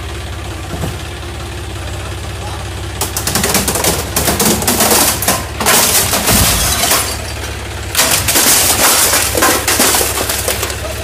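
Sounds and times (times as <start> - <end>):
tractor engine running: 0.0 - 11.0
plastic casing cracking and crunching: 7.9 - 10.8.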